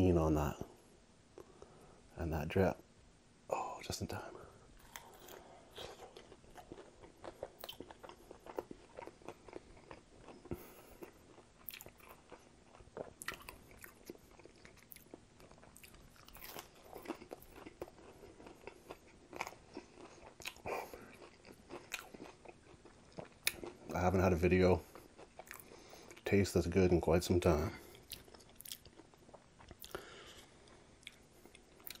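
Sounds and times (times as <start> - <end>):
crunchy chewing and biting: 4.8 - 23.9.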